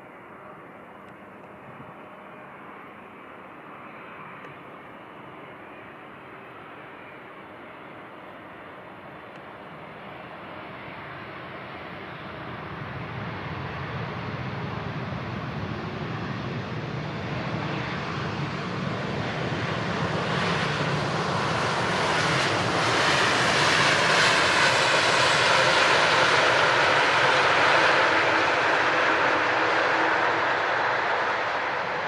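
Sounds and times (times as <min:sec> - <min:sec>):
airliner engine noise: 0:00.0 - 0:32.0.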